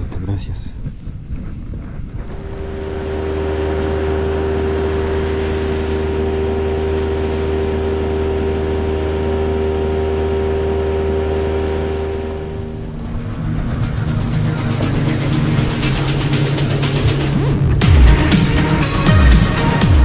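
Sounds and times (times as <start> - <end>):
outboard motor running: 2.1 - 20.0.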